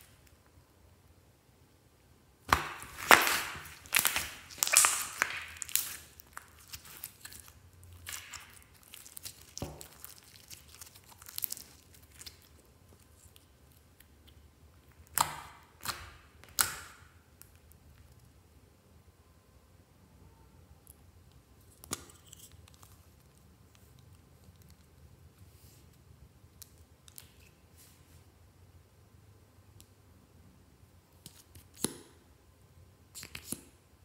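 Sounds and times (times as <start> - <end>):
slime crackling and popping: 2.5 - 18.3.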